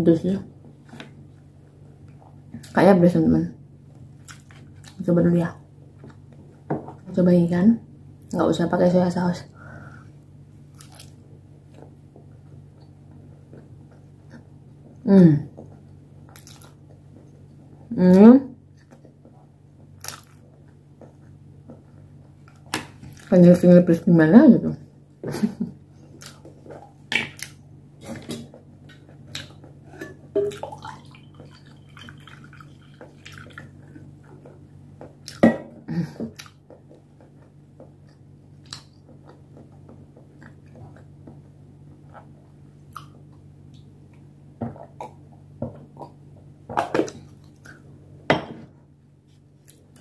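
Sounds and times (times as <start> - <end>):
steady low hum: 0.0 - 50.0
person chewing and lip smacking: 15.7 - 17.4, 19.8 - 21.4, 26.0 - 27.6, 36.3 - 44.3.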